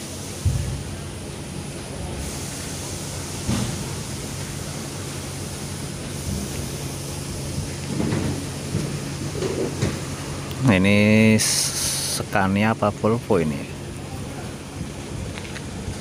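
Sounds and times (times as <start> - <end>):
outdoor rushing noise: 0.0 - 12.3
soft thump: 0.4 - 0.9.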